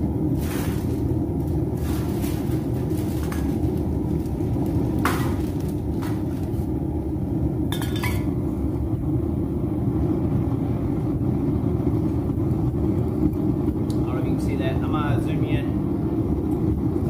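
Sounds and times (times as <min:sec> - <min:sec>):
furnace burner rumbling: 0:00.0 - 0:17.0
cans clinking in plastic bag: 0:00.4 - 0:06.7, 0:07.8 - 0:08.3.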